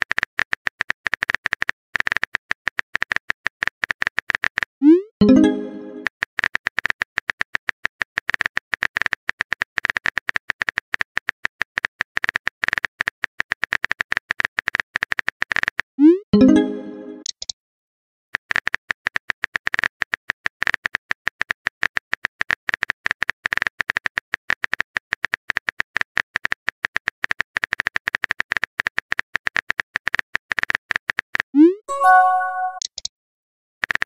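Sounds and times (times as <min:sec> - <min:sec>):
short chime: 0:31.9 - 0:32.9.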